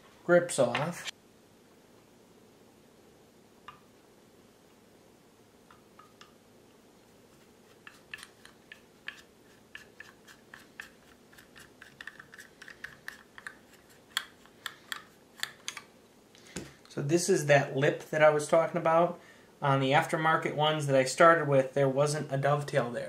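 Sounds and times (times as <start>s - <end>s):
screwdriver clicking and scraping: 7.7s - 15.8s.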